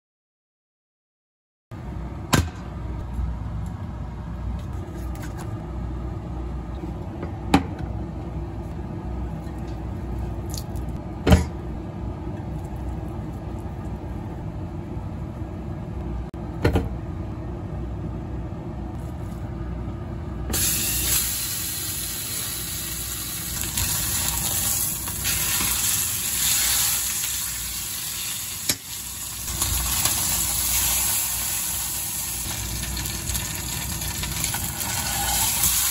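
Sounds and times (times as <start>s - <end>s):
meat sizzling in a skillet: 20.6s - 35.9s.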